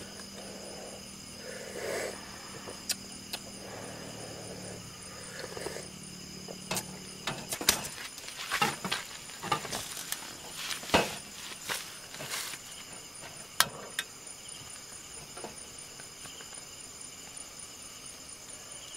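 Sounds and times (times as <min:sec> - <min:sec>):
night insects chirring: 0:00.0 - 0:18.9
metal mugs and pot clattering: 0:08.6 - 0:11.2.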